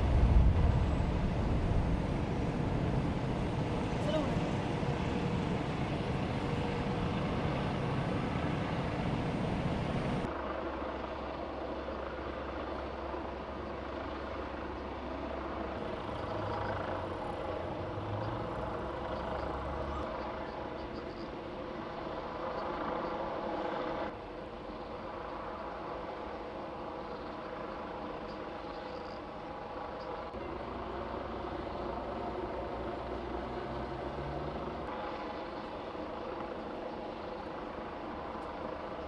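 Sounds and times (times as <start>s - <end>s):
distant vehicle engine rumble: 0.0s - 10.3s, 15.8s - 20.6s.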